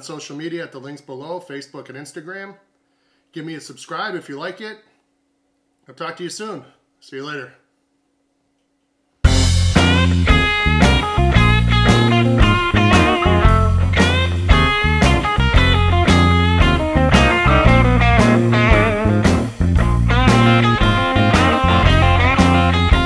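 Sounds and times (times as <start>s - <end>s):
rock music with bent guitar notes: 9.2s - 23.0s.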